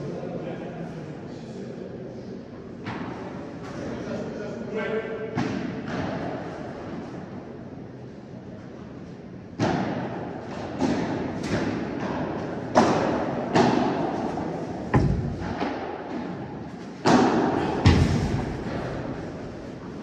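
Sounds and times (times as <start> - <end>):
padel ball hollow knocks: 14.9 - 15.9.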